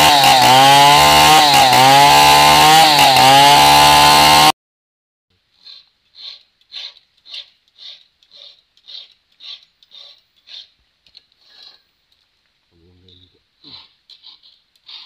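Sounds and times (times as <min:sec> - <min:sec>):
chainsaw at high revs: 0:00.0 - 0:04.6
soft scraping strokes: 0:05.5 - 0:12.0, 0:13.7 - 0:15.0.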